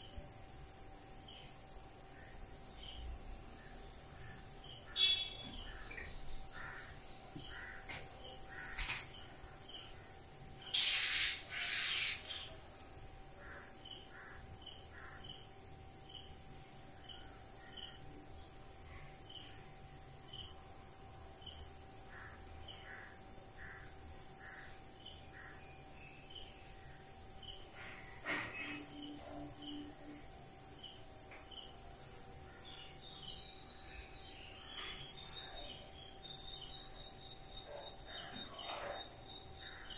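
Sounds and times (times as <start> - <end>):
crickets chirring: 0.0 - 39.9
bird-like chirps: 4.9 - 6.3, 10.7 - 12.6.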